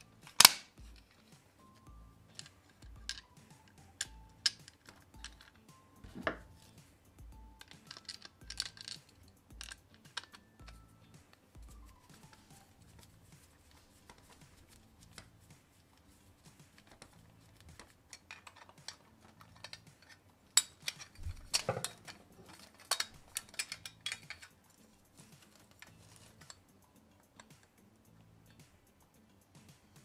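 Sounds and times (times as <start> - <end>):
hand tools clicking on plastic: 0.0 - 27.8.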